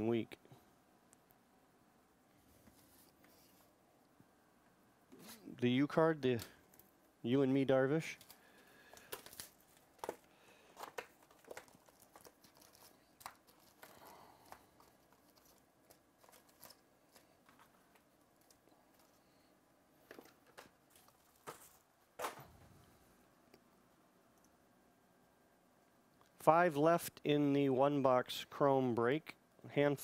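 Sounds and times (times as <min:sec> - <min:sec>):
card packs ticking and crinkling: 0:07.9 - 0:22.4
card packs rustling: 0:08.0 - 0:22.6.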